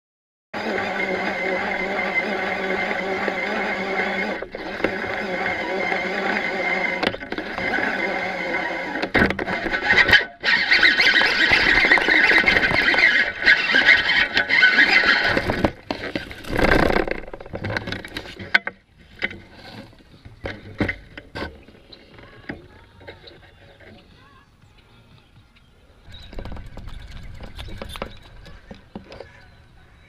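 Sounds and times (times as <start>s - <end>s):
fishing reel whirring squeal: 0.6s - 17.4s
handling knocks and clicks: 11.1s - 24.1s, 26.1s - 29.4s.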